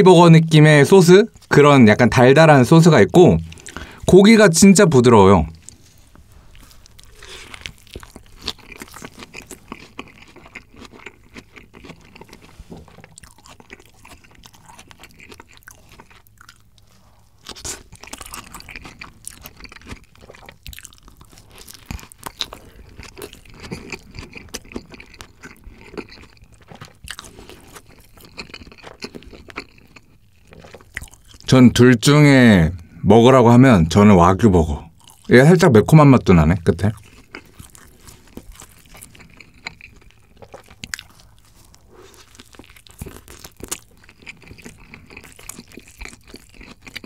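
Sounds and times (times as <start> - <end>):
wet chewing mouth sounds: 3.4 - 4.0, 5.5 - 31.5, 34.9 - 35.3, 36.8 - 47.0
crisp crunches of food: 5.6 - 31.6, 36.8 - 47.0.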